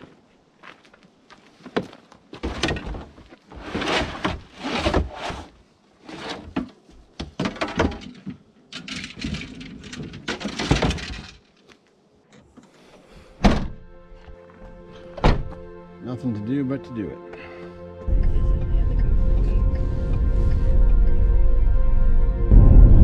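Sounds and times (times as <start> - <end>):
liftgate shutting with a thud: 13.4 - 13.8.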